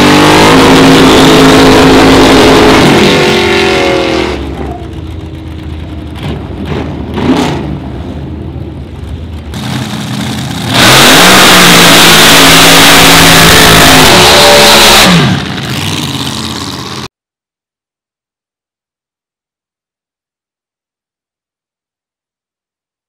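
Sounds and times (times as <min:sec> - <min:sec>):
drag racing car engine revving: 0:00.0 - 0:07.8, 0:09.0 - 0:17.1.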